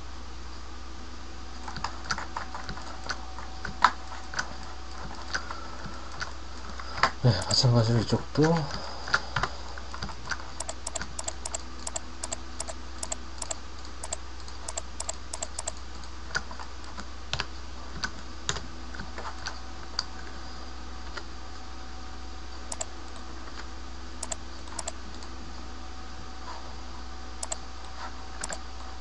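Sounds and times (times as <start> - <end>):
steady low hum: 0.0 - 29.0
keyboard and mouse clicking: 9.4 - 18.2, 22.7 - 23.2, 24.2 - 25.2, 28.4 - 28.6.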